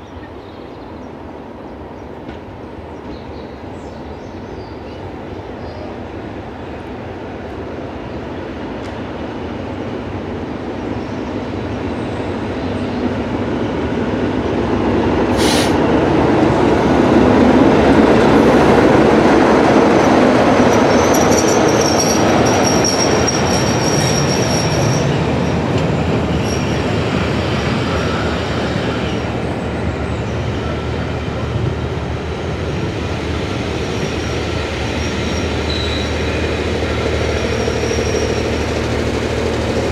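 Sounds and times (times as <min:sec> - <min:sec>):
diesel locomotive passing: 0:00.0 - 0:39.9
train wheels squealing: 0:19.9 - 0:31.1, 0:33.4 - 0:39.8.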